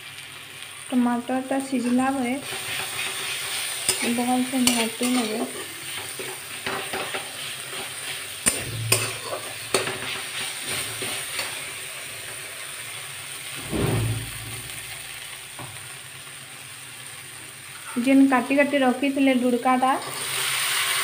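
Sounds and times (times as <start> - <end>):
food sizzling: 0.0 - 21.0
spatula scraping a pan: 1.8 - 11.8
spatula clanking against pan: 3.9 - 10.2
dull thump: 13.6 - 14.2.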